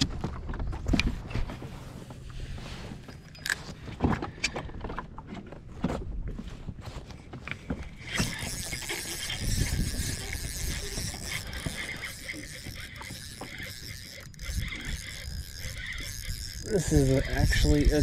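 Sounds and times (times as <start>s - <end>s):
gear knocking on plastic kayak: 7.6s - 18.0s.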